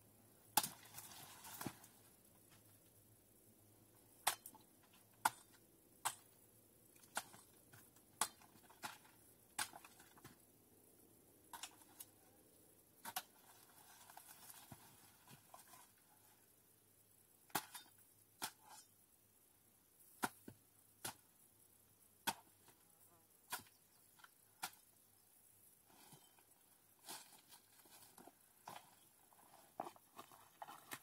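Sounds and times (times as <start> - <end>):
leaves rustling: 0.7 - 2.1.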